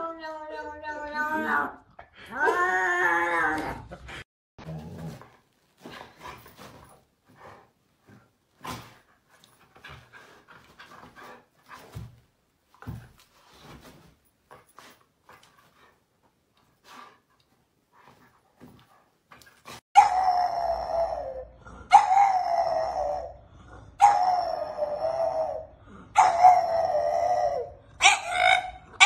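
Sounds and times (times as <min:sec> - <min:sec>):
dog panting and huffing: 0:05.8 - 0:12.2
dog wavering cry: 0:20.0 - 0:23.4, 0:24.0 - 0:29.0.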